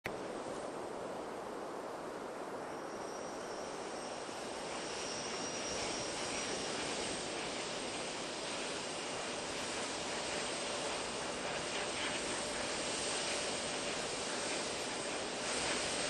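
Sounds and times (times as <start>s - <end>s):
rushing hiss-like noise: 0.1s - 16.0s
faint high whistle: 2.6s - 11.0s.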